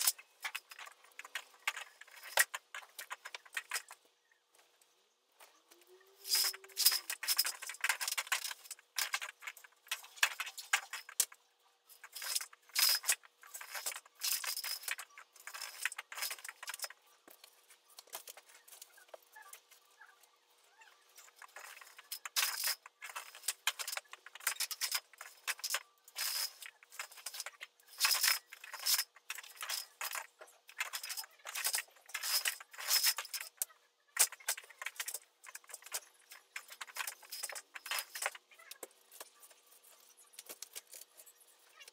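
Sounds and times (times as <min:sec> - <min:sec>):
window blind slats rattling: 0:06.2 - 0:18.7, 0:21.0 - 0:39.4.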